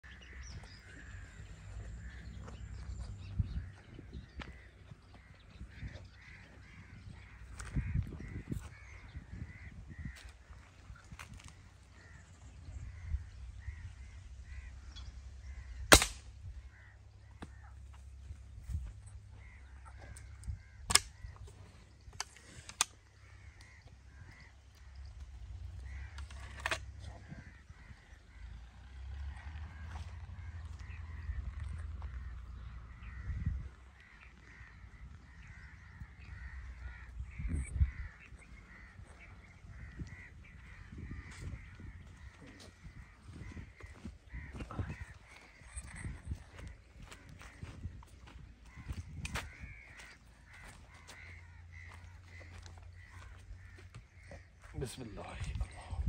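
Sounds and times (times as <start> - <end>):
birds calling: 0.0 - 56.0
crows cawing: 0.0 - 56.0
air rifle shot: 15.9 - 16.4.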